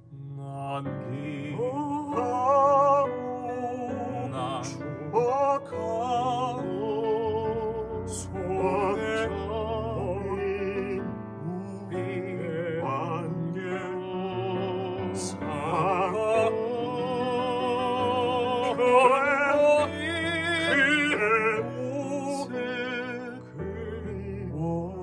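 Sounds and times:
male vocal group singing operatically: 0:00.4 - 0:25.0.

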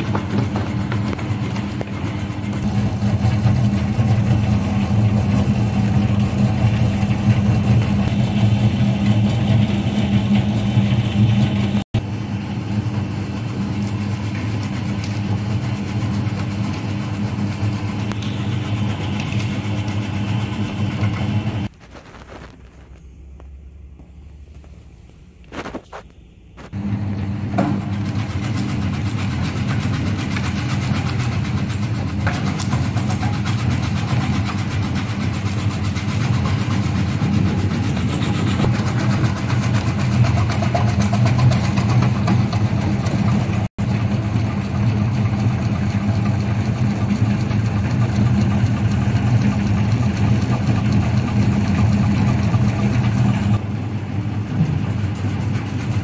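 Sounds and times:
vegetable cutting machine humming: 0:00.0 - 0:22.5, 0:26.6 - 0:56.0.

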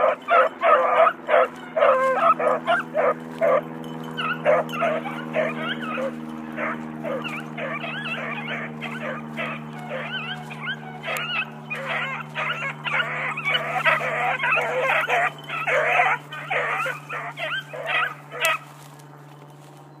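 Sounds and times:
dogs baying: 0:00.0 - 0:19.4
low hum: 0:00.0 - 0:20.0.

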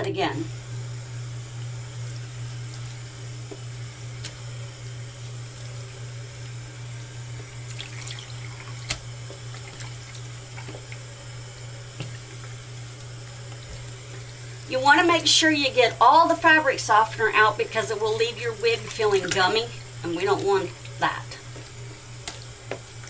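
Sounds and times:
tap water running into sink: 0:07.3 - 0:11.1, 0:17.9 - 0:23.0.

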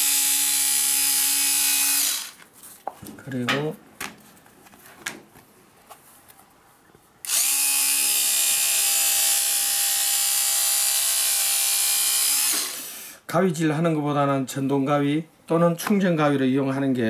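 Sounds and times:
electric scissors cutting: 0:00.0 - 0:02.4, 0:07.2 - 0:13.1.

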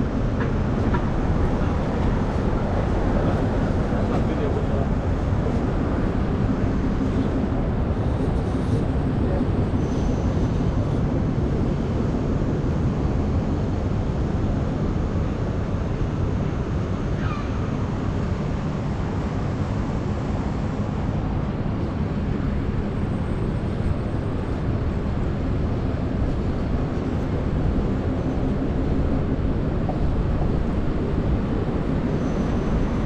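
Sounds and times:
city background rumble: 0:00.0 - 0:33.0.

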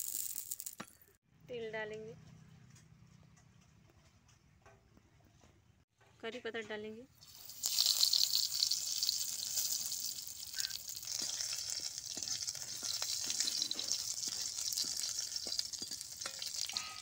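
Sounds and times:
ladle ticking in a pan: 0:07.2 - 0:17.0
leaves sizzling in hot oil: 0:07.2 - 0:17.0.

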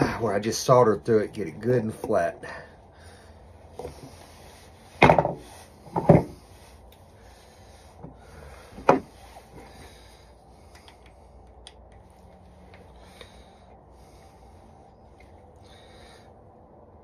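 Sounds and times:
tools knocking on wooden workbench: 0:05.0 - 0:05.4, 0:06.0 - 0:06.4, 0:08.8 - 0:09.0.

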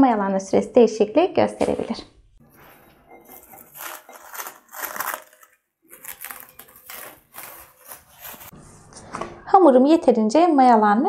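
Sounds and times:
cling film crinkling: 0:02.5 - 0:08.5.

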